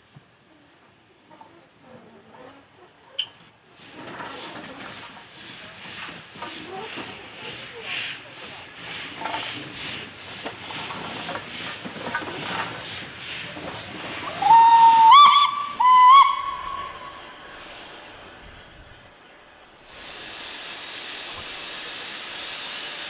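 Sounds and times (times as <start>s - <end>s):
steam hissing: 3.8s - 18.9s, 19.6s - 23.0s
steam locomotive exhaust beats: 3.8s - 23.0s
steam whistle blasts: 14.3s - 17.5s.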